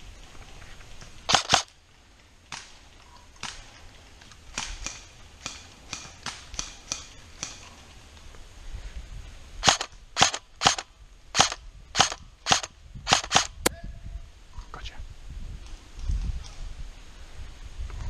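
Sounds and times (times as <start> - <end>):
airsoft rifle shots: 1.3 - 1.7, 9.6 - 13.7.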